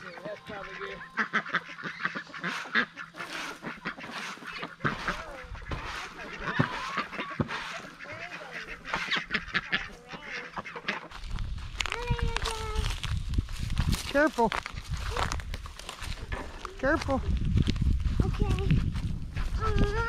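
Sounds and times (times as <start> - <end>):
poultry calling: 0.0 - 11.2.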